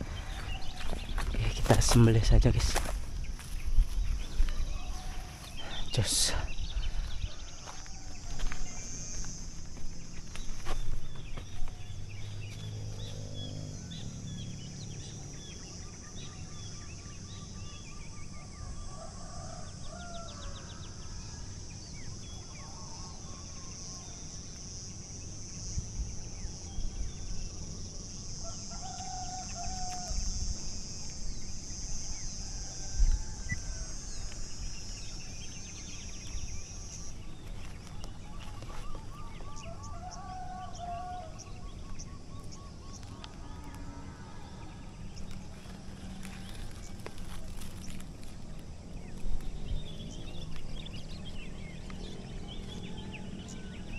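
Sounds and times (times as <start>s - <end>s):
roosters crowing: 0.0s - 2.8s, 4.1s - 16.0s, 18.4s - 21.8s, 28.0s - 30.8s, 32.1s - 53.9s
steady high buzz: 0.0s - 18.6s.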